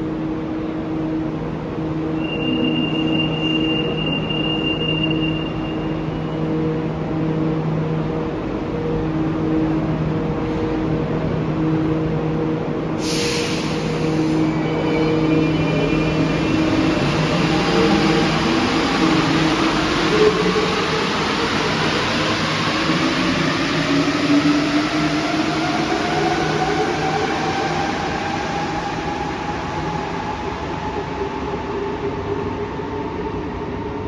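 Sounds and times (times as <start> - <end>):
air hiss: 13.0 - 14.5.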